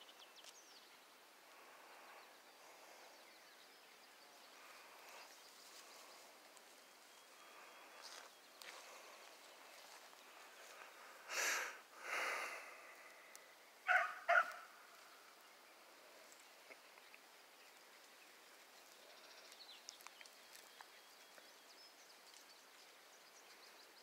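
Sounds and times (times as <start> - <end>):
faint outdoor background: 0.0 - 24.0
dog barking: 13.9 - 14.6.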